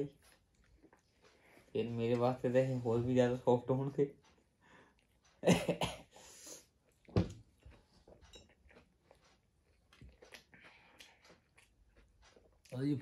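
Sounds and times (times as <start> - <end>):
person chewing: 0.1 - 1.8, 6.2 - 13.0
short thump: 7.1 - 7.4.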